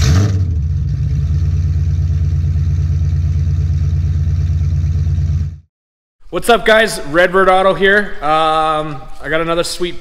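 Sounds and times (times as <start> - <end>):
car engine revving and idling: 0.0 - 5.6.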